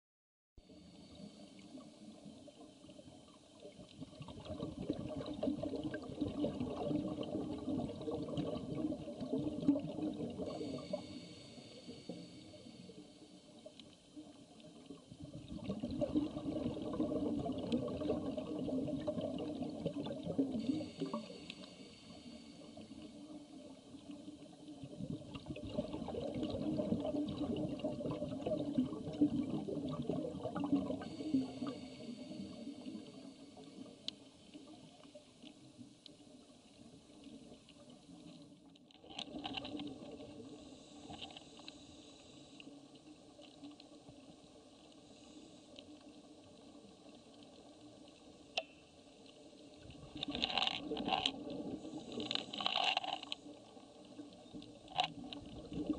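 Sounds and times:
faint hiss of inhaling: 0:00.6 - 0:02.2, 0:10.5 - 0:14.0, 0:20.6 - 0:23.9, 0:31.0 - 0:36.0, 0:40.4 - 0:43.1, 0:44.9 - 0:46.2
bubbling exhaled air underwater: 0:00.6 - 0:13.0, 0:14.8 - 0:34.1, 0:49.8 - 0:55.9.

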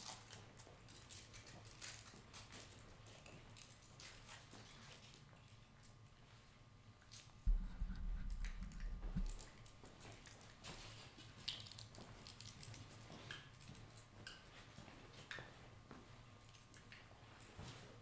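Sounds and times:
low rumble: 0:07.5 - 0:09.7.

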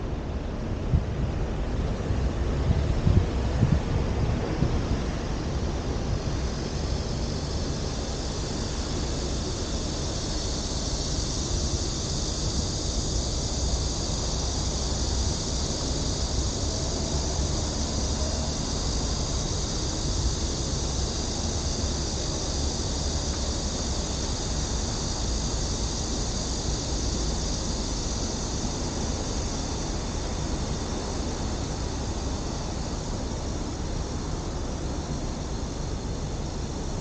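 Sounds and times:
cicadas droning: 0:00.0 - 0:37.0.

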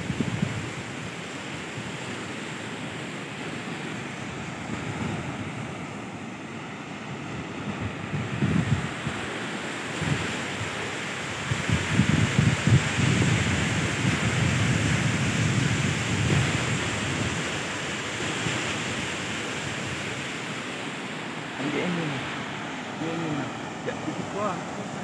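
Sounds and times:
wind buffeting microphone: 0:00.0 - 0:02.2, 0:03.4 - 0:06.2, 0:07.1 - 0:21.0
surf breaking on sandy beach: 0:00.0 - 0:25.0.

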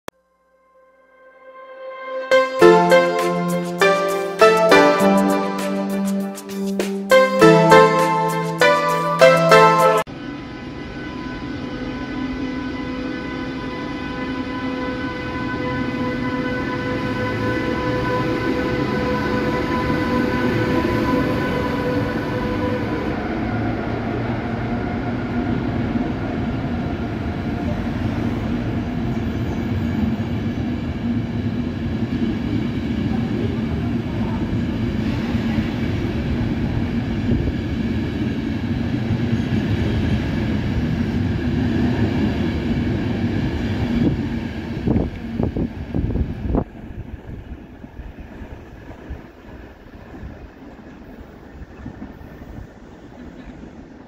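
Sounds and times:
train coaches rumbling on rails: 0:14.8 - 0:54.0.

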